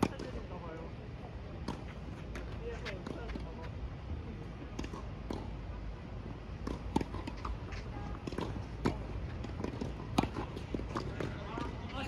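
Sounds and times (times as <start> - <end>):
tennis balls bouncing: 1.6 - 3.6, 4.7 - 5.6, 6.2 - 12.0.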